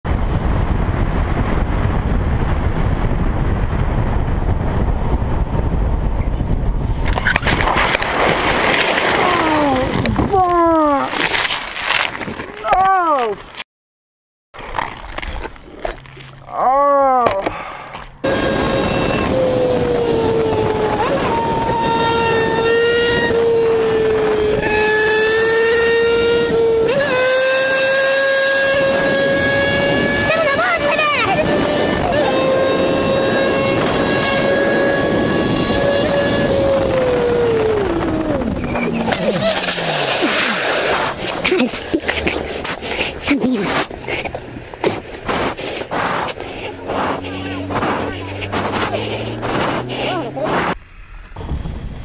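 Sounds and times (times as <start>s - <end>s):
motorcycle riding with wind rush: 0.0s - 11.3s, 17.2s - 52.0s
bike scraping on asphalt: 6.8s - 10.2s, 11.0s - 12.6s, 18.0s - 51.4s.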